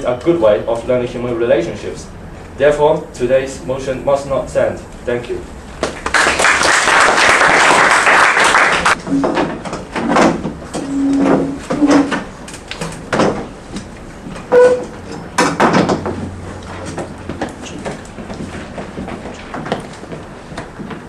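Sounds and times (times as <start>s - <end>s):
audience clapping: 5.8s - 9.0s.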